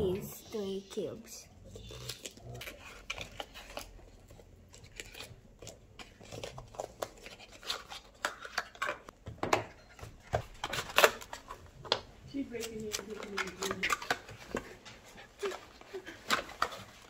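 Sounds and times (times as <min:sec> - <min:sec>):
paper rustling: 0:10.3 - 0:17.0.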